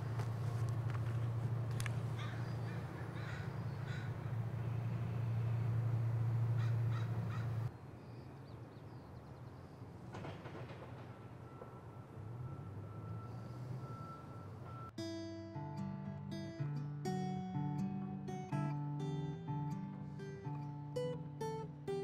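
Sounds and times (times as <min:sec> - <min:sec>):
outdoor low rumble: 0:00.0 - 0:07.7
crows cawing: 0:02.1 - 0:04.8, 0:06.5 - 0:07.7.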